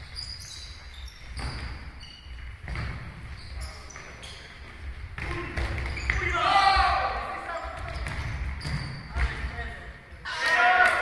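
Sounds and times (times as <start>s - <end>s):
sports shoes squeaking: 0.0s - 10.2s
ball kicked and bouncing: 2.6s - 3.2s
players shouting: 6.1s - 7.7s.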